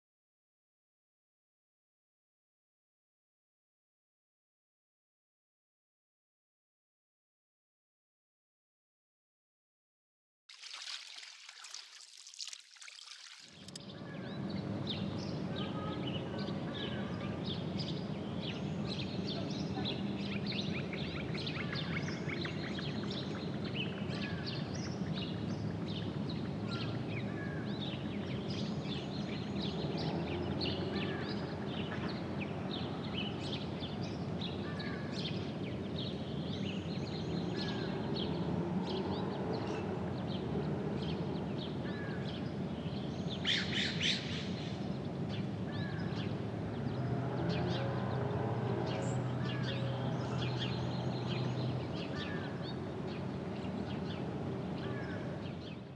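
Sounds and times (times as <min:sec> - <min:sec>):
flock of birds chirping: 0:13.6 - 0:55.9.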